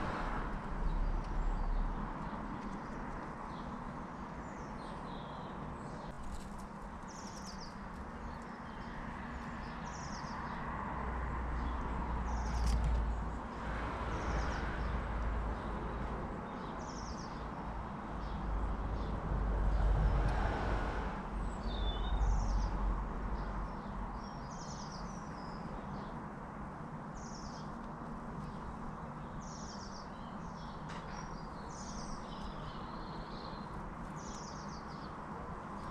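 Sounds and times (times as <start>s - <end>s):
small songbird singing: 0.9s - 6.4s, 7.0s - 10.6s, 11.6s - 13.5s, 16.4s - 17.6s, 21.4s - 22.8s, 23.4s - 26.2s, 27.2s - 27.8s, 28.4s - 35.9s.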